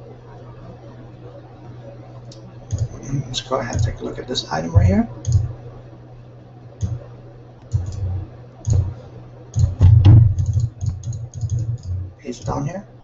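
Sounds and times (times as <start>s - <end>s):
computer mouse and keyboard clicks: 2.3s - 3.0s, 5.2s - 5.5s, 7.6s - 8.9s, 9.6s - 12.6s.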